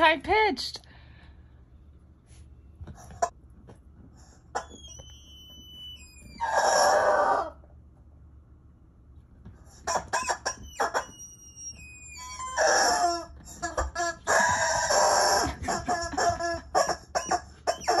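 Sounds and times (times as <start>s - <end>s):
rubber toy squeaking: 4.5s - 7.5s, 9.7s - 18.0s.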